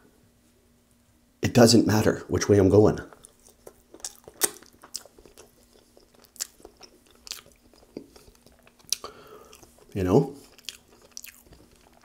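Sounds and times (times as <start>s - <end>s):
faint steady hum: 0.0s - 12.0s
person chewing food: 3.1s - 12.0s.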